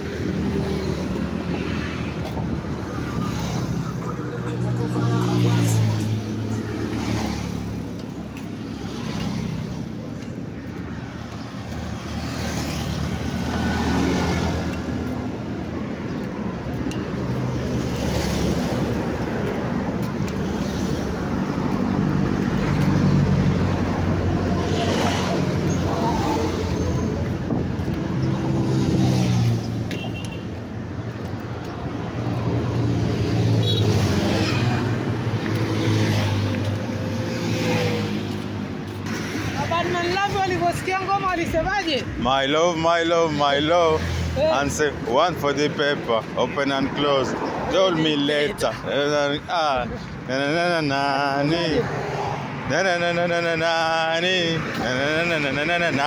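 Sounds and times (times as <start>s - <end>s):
road traffic passing: 0.0s - 56.0s.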